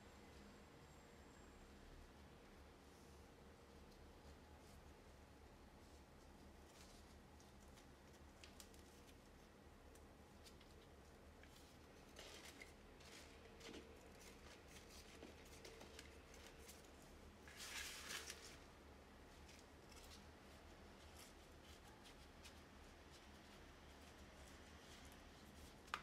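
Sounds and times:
potting mix scraping and rustling: 0:10.4 - 0:26.0.

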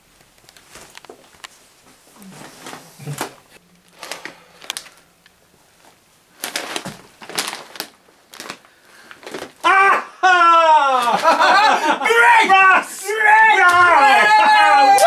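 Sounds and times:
plastic packet crinkling: 0:03.8 - 0:05.1, 0:05.8 - 0:09.6.

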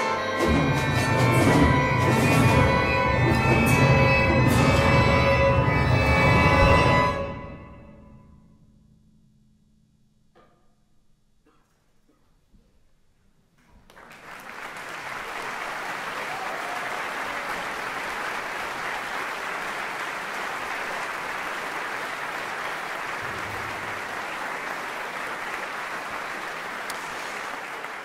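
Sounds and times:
audience applauding: 0:13.8 - 0:28.0.

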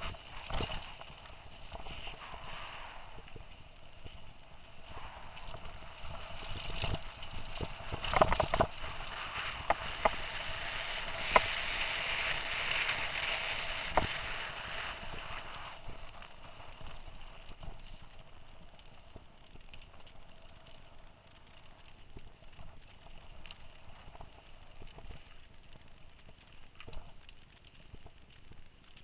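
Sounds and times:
bike tyres rushing hiss: 0:00.0 - 0:18.2.

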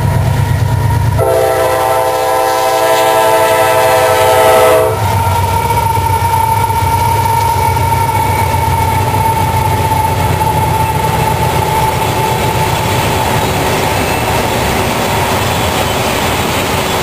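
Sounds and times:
diesel locomotives rumbling: 0:00.0 - 0:17.0
train air horn chord: 0:01.2 - 0:05.2.

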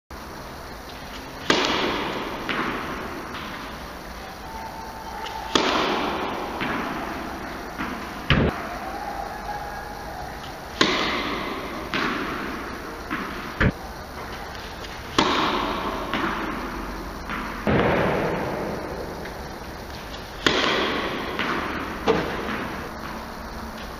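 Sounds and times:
racket hitting tennis ball: 0:00.8 - 0:08.9, 0:10.2 - 0:23.9
tennis ball landing tap: 0:01.0 - 0:03.7, 0:05.2 - 0:08.5, 0:10.4 - 0:23.2
ball bouncing on court: 0:01.0 - 0:03.8, 0:04.4 - 0:08.7, 0:10.4 - 0:23.9.

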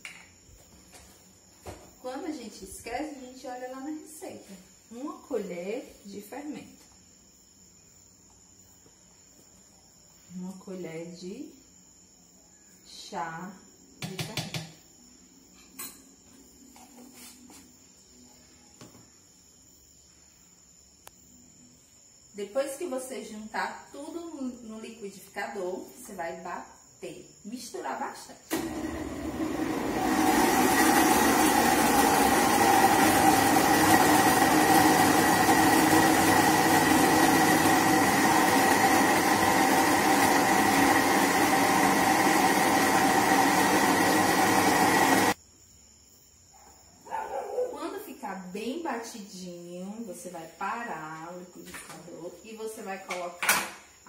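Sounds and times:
blender motor whining: 0:28.5 - 0:45.4.

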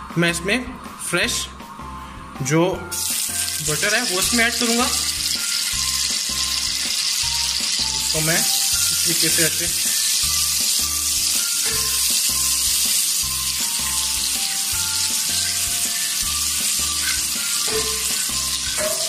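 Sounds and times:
background music with a beat: 0:00.0 - 0:19.0
butter and oil sizzling in a pan: 0:02.9 - 0:19.0.

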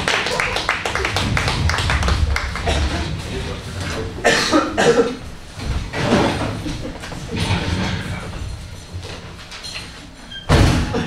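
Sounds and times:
indistinct voices: 0:00.0 - 0:09.1
person coughing: 0:04.2 - 0:05.2.

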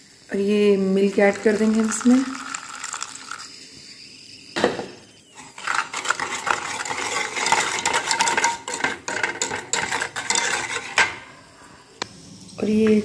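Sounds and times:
whisk beating in metal bowl: 0:05.4 - 0:11.1.

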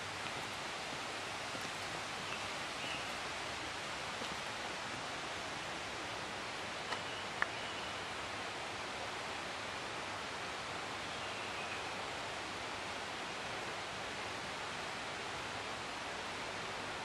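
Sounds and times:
outdoor ambient hiss: 0:00.0 - 0:17.0.

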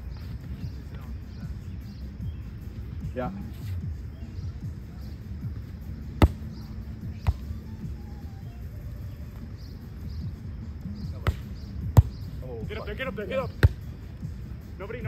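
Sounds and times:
volleyball slaps: 0:06.2 - 0:06.6, 0:11.2 - 0:12.2, 0:13.6 - 0:13.8.

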